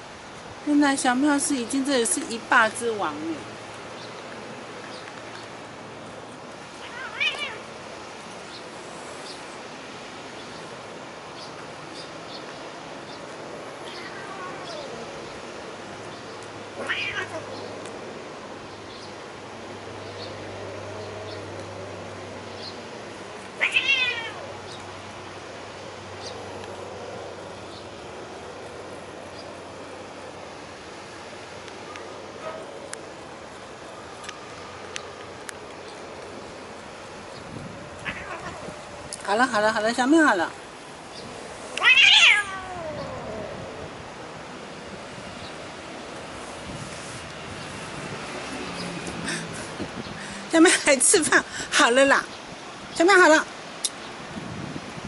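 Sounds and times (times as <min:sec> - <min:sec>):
steady background hiss: 0:00.0 - 0:55.0
cat yowling: 0:06.8 - 0:07.6, 0:13.8 - 0:15.0, 0:16.8 - 0:17.6, 0:23.6 - 0:24.5, 0:38.0 - 0:38.7, 0:41.8 - 0:43.7.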